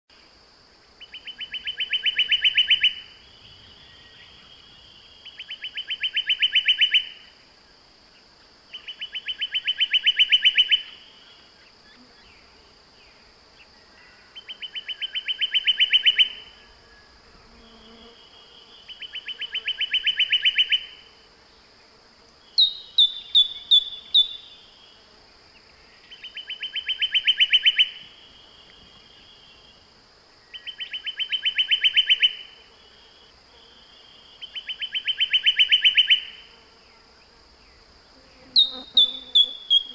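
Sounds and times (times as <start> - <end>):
bird pulsed trill: 1.0 - 7.2, 14.0 - 16.7, 22.5 - 24.7, 26.1 - 29.8, 34.0 - 36.4, 38.6 - 39.9.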